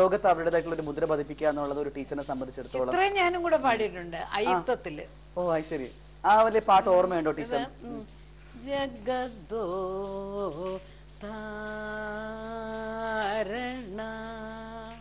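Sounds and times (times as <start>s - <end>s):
woman singing unaccompanied: 2.7s - 5.1s, 6.4s - 15.0s.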